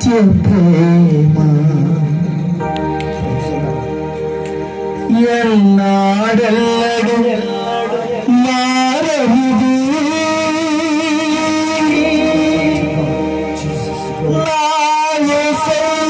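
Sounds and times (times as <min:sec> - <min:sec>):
man singing into microphone: 0:00.0 - 0:02.7, 0:05.0 - 0:16.0
instrumental accompaniment: 0:00.0 - 0:16.0.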